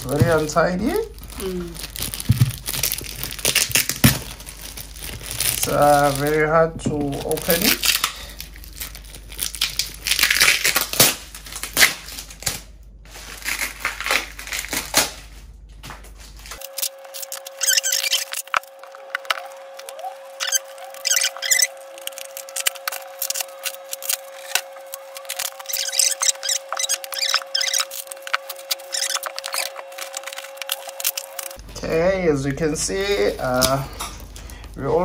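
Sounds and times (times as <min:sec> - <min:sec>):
paper tearing and crumpling: 0:00.0 - 0:06.4, 0:07.0 - 0:15.4, 0:16.3 - 0:31.6.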